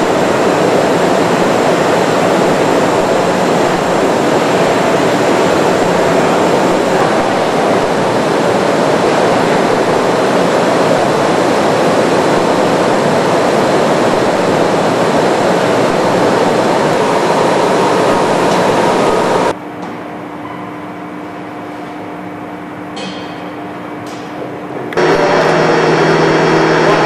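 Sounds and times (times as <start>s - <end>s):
loud rushing machine noise: 0.0s - 19.6s, 25.0s - 27.0s.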